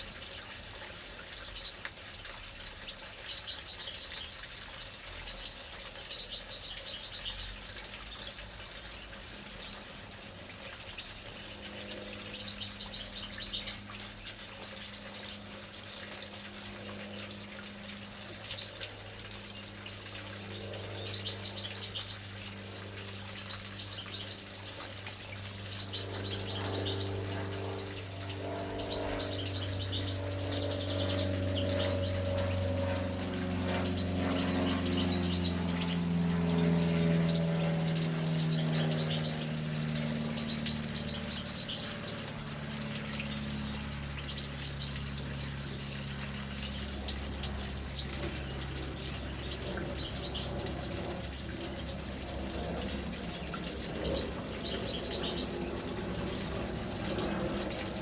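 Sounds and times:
fountain trickling water: 0:00.0 - 0:58.0
pump low hum: 0:00.0 - 0:58.0
goldfinches twittering: 0:09.6 - 0:14.2, 0:23.2 - 0:36.2, 0:37.1 - 0:42.4, 0:43.2 - 0:51.1, 0:52.8 - 0:58.0.

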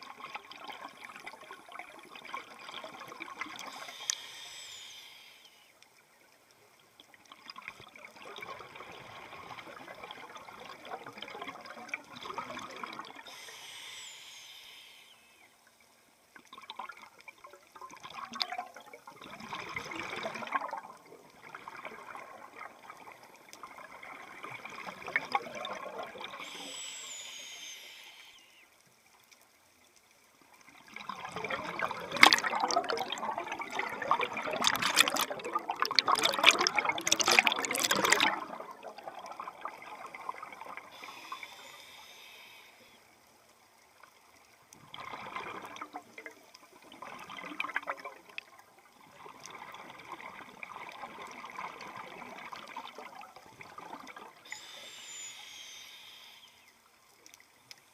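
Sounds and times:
regulator inhale hiss: 0:03.6 - 0:05.8, 0:13.2 - 0:15.5, 0:26.3 - 0:28.8, 0:40.9 - 0:43.2, 0:54.4 - 0:56.8
exhaled bubbles rushing: 0:17.9 - 0:26.4, 0:30.8 - 0:40.9, 0:44.9 - 0:48.4.

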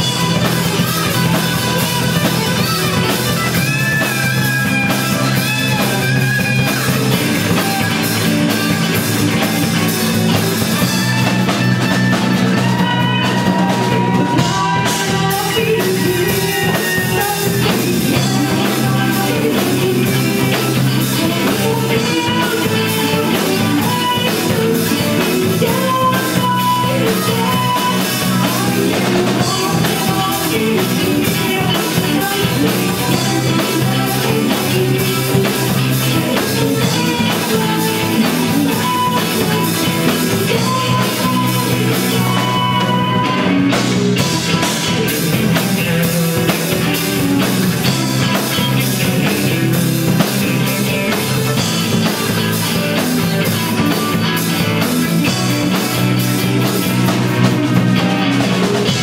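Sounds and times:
rock band playing live: 0:00.0 - 0:59.0.

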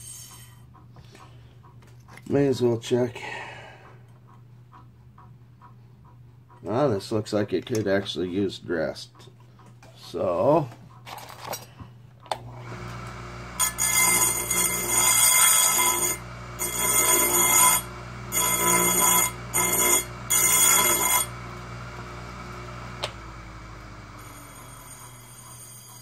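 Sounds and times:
high ringing grinding: 0:00.0 - 0:00.6, 0:12.5 - 0:26.0
grinder motor humming: 0:12.3 - 0:26.0.

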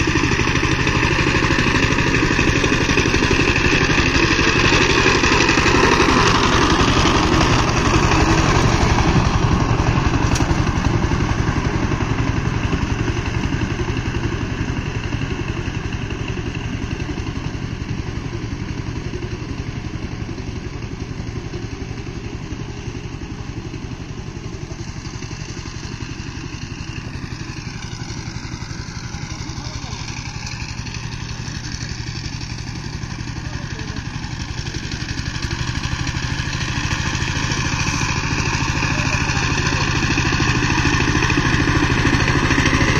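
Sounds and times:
diesel tiller engine thudding: 0:00.0 - 0:42.9.

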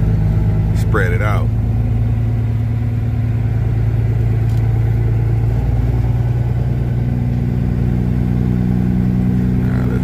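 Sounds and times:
truck diesel engine droning: 0:00.0 - 0:10.0.

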